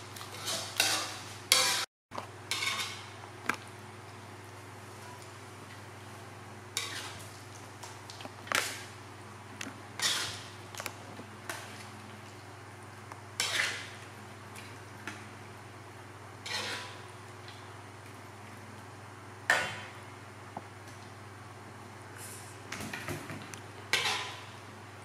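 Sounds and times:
metal spatula scraping wok: 0:00.3 - 0:01.9, 0:06.8 - 0:07.2, 0:10.0 - 0:10.5, 0:13.4 - 0:14.0, 0:16.4 - 0:17.0, 0:23.9 - 0:24.5.

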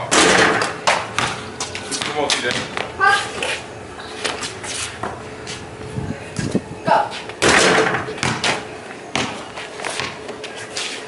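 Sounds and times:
basketball bouncing on concrete: 0:00.2 - 0:02.9, 0:07.4 - 0:10.4.

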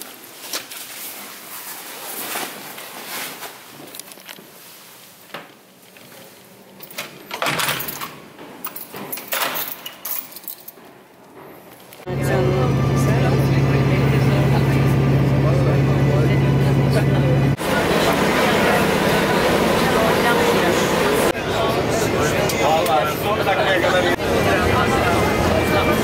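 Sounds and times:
keys jangling: 0:06.8 - 0:10.9.

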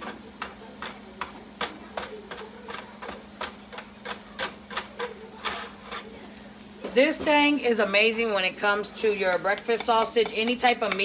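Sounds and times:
plastic chopper tapping frying pan: 0:00.0 - 0:06.0, 0:09.5 - 0:11.0.

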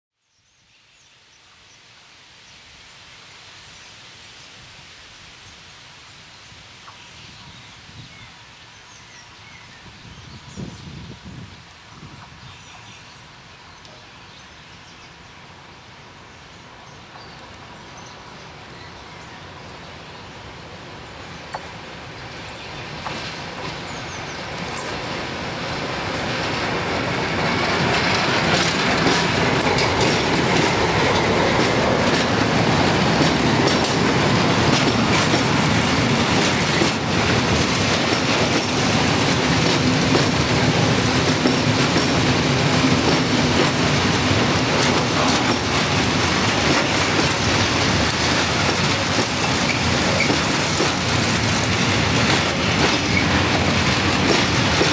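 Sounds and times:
diesel locomotive passing: 0:15.1 - 0:54.9
train wheels clacking over rail joints: 0:21.5 - 0:54.9.

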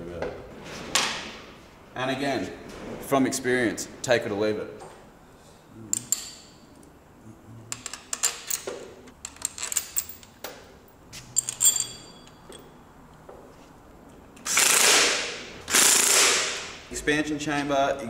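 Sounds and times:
metallic clinks of hand tools: 0:11.3 - 0:12.8
high metallic ting: 0:11.4 - 0:12.8.

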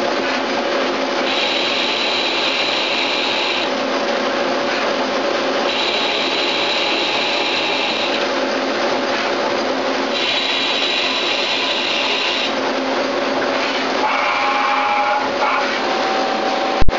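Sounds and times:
lathe spindle humming: 0:00.0 - 0:16.9
tool cutting metal: 0:01.2 - 0:03.7, 0:05.6 - 0:08.2, 0:10.1 - 0:12.6.

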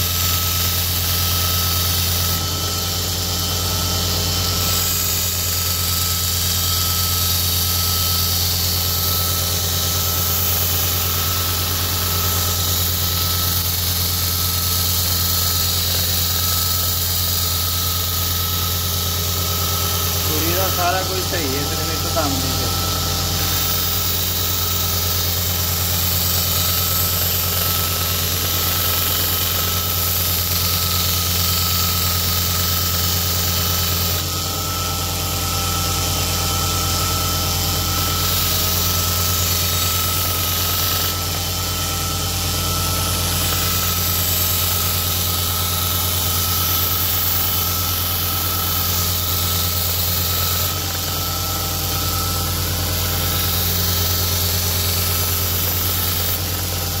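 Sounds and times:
belt grinder motor hum: 0:00.0 - 0:57.0.

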